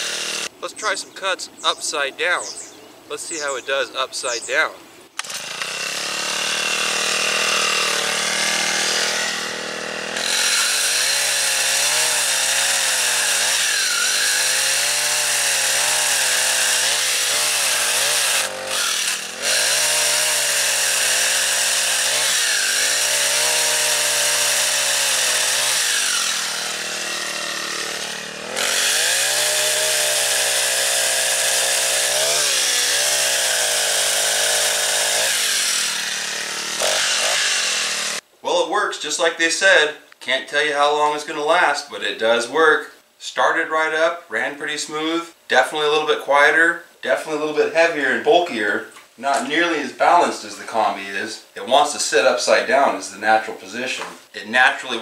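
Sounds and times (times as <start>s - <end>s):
small engine chainsaw cutting log: 0.0s - 0.6s, 5.2s - 38.2s.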